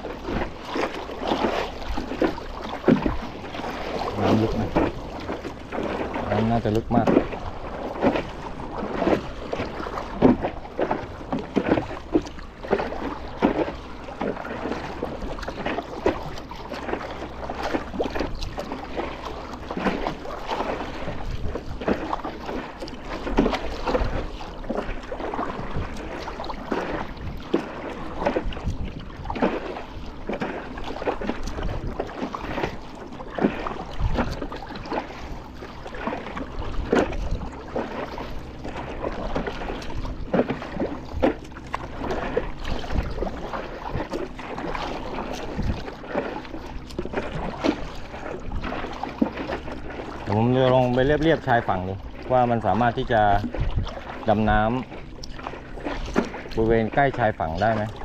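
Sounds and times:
paddle strokes splashing water: 0.0s - 58.0s
water lapping against board: 0.0s - 58.0s
wind rumbling on microphone: 23.2s - 46.0s, 50.0s - 55.3s.

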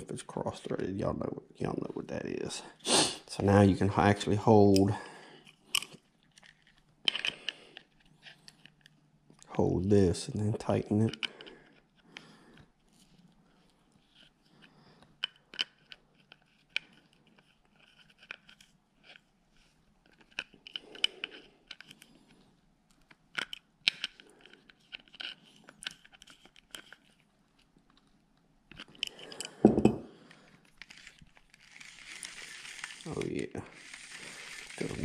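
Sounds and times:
small clicks and ticks: 30.3s - 35.0s.

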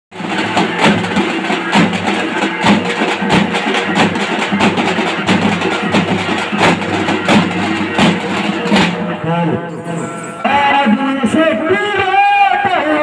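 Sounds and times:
drummers beating large drums: 0.1s - 9.6s.

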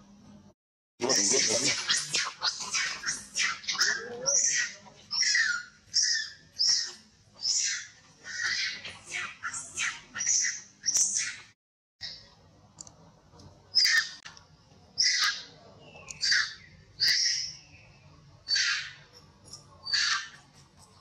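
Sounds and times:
monkey screaming shrieks: 1.1s - 11.5s, 13.7s - 14.2s, 15.0s - 15.5s, 16.2s - 17.5s, 18.5s - 19.0s, 19.8s - 20.4s.

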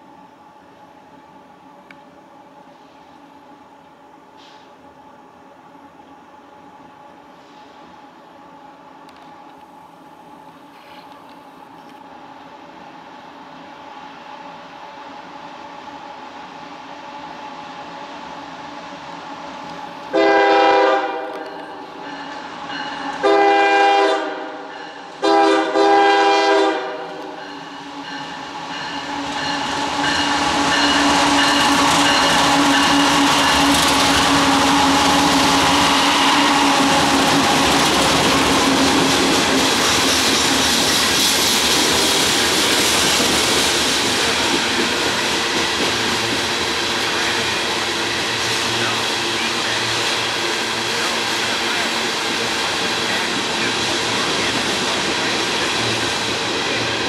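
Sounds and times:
locomotive air horn: 20.1s - 21.6s, 23.2s - 27.3s
train wheels clattering on rails: 21.0s - 25.2s, 27.0s - 57.0s
locomotive engines running: 27.1s - 57.0s.

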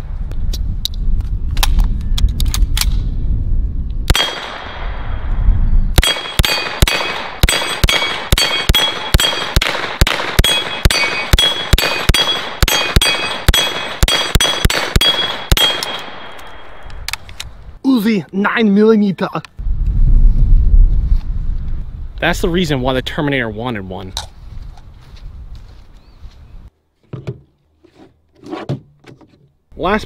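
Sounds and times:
steel target ringing: 6.0s - 9.6s, 10.4s - 16.8s
rapid gunshots: 6.0s - 16.2s.

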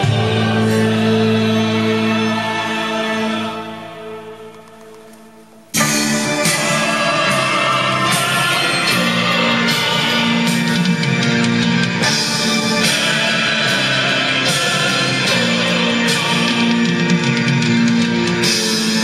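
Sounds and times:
loud rock music with singing: 0.0s - 4.8s, 5.8s - 19.0s
steady drum beat: 4.7s - 19.0s.

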